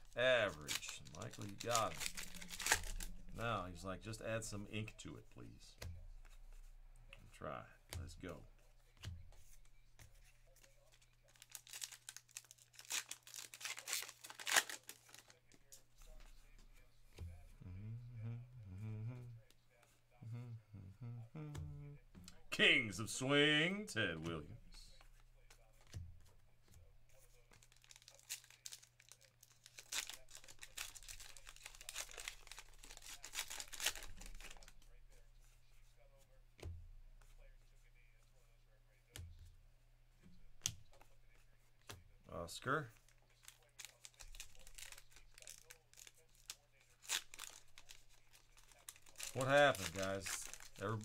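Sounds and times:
wrapper crinkling and tearing: 0.0s - 4.5s, 10.6s - 15.6s, 27.6s - 34.9s, 42.7s - 51.0s.

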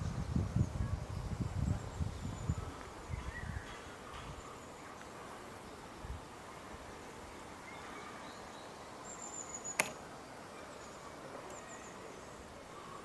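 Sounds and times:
sharp click: 9.7s - 10.0s.

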